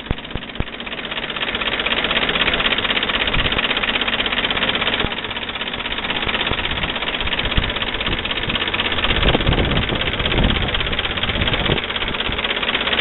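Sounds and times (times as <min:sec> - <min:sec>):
car engine idling with clatter: 0:00.0 - 0:13.0.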